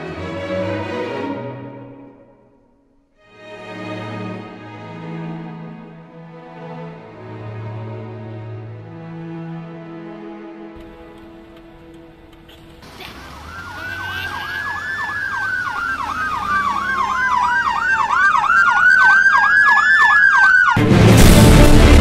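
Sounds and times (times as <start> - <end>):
police siren wailing and yelping: 12.4 - 20.8
loud music: 20.7 - 22.0.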